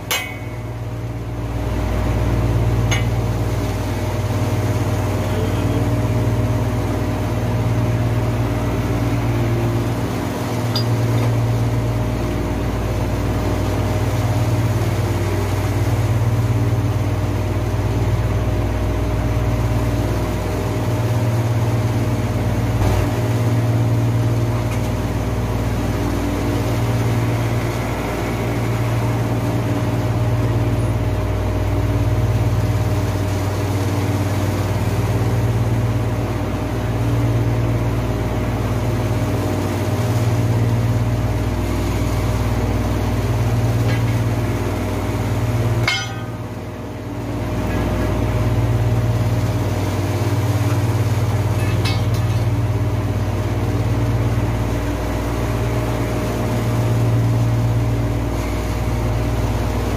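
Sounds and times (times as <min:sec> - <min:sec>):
steady higher tone: 0:00.1 - 0:01.3, 0:02.2 - 0:03.8, 0:10.6 - 0:12.0, 0:43.8 - 0:48.8.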